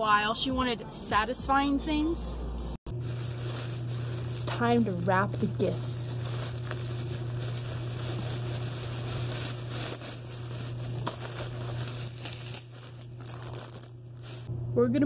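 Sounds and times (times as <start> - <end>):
steady low hum: 2.3 - 15.0
plastic bag crinkling: 2.9 - 14.5.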